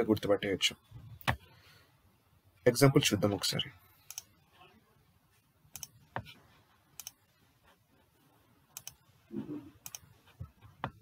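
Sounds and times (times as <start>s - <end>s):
computer mouse clicking: 4.1s - 4.3s, 5.7s - 6.0s, 7.0s - 7.2s, 8.7s - 9.0s, 9.8s - 10.2s.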